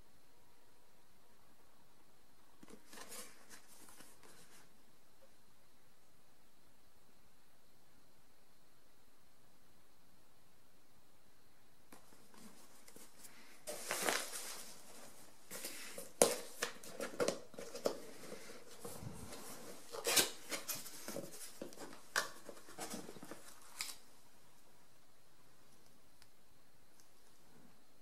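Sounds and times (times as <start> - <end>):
cardboard and paper rustling: 2.6 - 4.7, 11.9 - 24.1.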